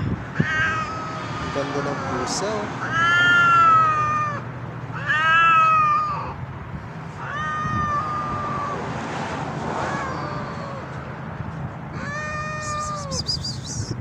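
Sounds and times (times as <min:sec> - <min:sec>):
cat yowling: 0:00.3 - 0:06.4, 0:07.2 - 0:11.1, 0:11.9 - 0:13.9.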